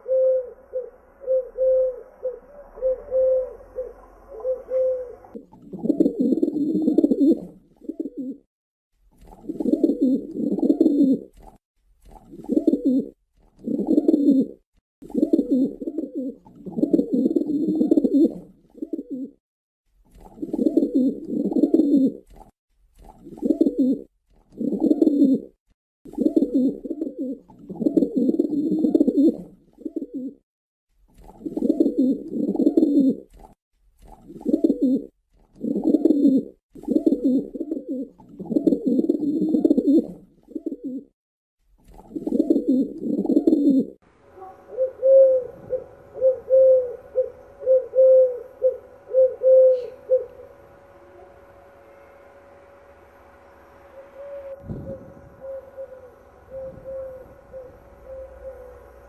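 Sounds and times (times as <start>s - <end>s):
higher dove call: 0.0s - 5.4s, 44.3s - 51.5s, 53.9s - 59.0s
pigeons cooing: 0.0s - 8.5s, 9.3s - 11.3s, 12.3s - 19.4s, 20.2s - 22.3s, 23.2s - 30.4s, 31.2s - 33.3s, 34.3s - 41.1s, 41.9s - 50.6s, 53.9s - 59.0s.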